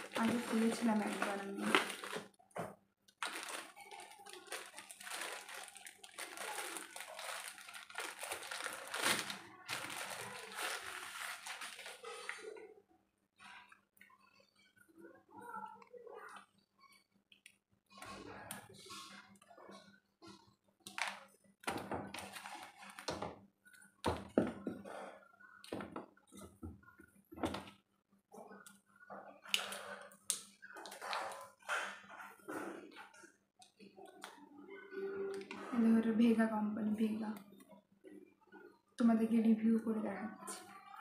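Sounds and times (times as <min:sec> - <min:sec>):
plastic packaging crinkling: 0:00.0 - 0:02.4, 0:03.1 - 0:12.5, 0:20.9 - 0:23.4.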